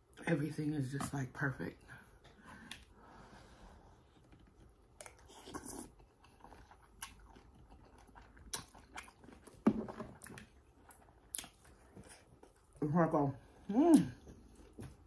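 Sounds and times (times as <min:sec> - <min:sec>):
person chewing with wet smacks: 0:04.0 - 0:12.9, 0:13.9 - 0:15.0.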